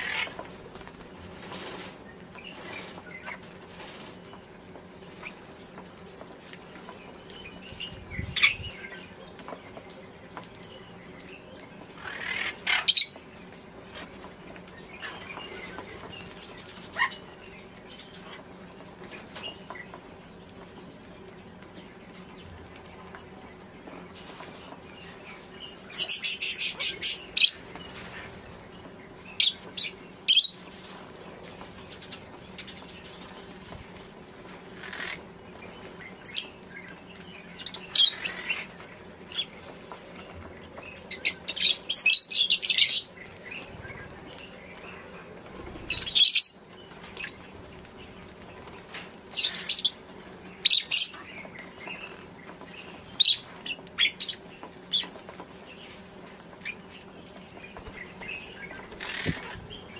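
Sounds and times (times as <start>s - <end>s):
lovebirds chirping: 0.0s - 59.9s.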